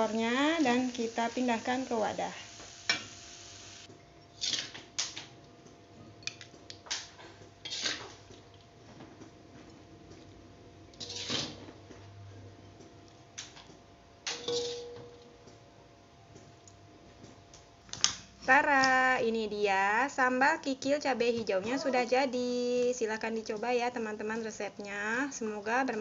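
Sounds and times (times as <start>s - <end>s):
metal spatula scraping wok: 4.4s - 4.8s, 7.6s - 8.2s, 11.0s - 11.8s, 14.3s - 14.9s.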